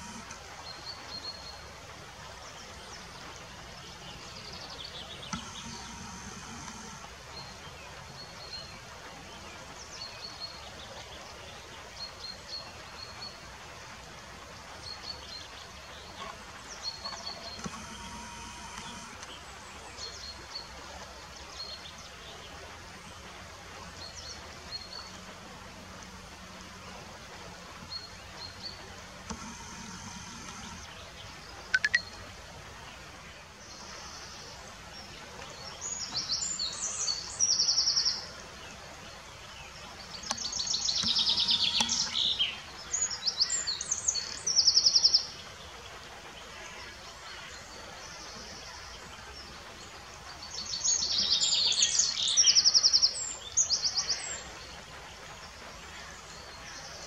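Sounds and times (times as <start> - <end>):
background hiss: 0.0 - 57.0
brief steady hum: 5.3 - 7.1
high-pitched chirping calls: 31.7 - 32.1.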